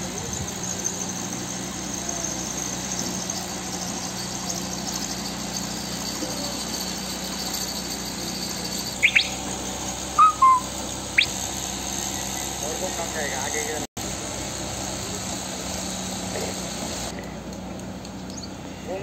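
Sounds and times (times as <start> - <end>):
shrill rising chirps: 6.8 - 11.4
diesel engine idling: 8.2 - 17.4.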